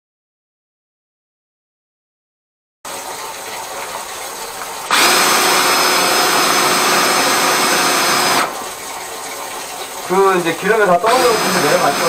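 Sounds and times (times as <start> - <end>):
drain-cleaning machine motor: 4.8 - 12.0.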